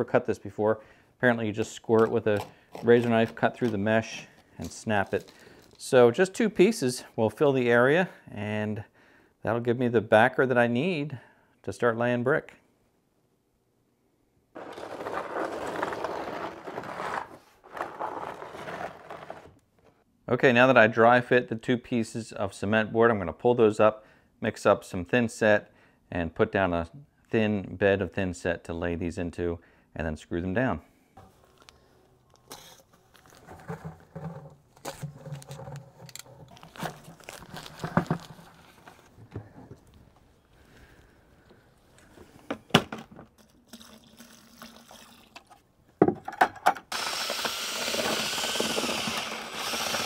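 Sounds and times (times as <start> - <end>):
paper sack crinkling: 1.7 - 5.9, 14.6 - 19.6, 31.2 - 40.0
board scraping across wooden floor: 14.6 - 19.6, 32.5 - 39.9.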